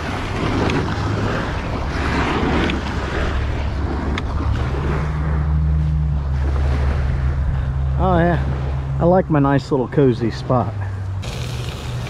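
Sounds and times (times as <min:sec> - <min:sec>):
wind rumbling on microphone: 0:00.0 - 0:09.1
kayak hull scraping on sand: 0:11.2 - 0:12.0.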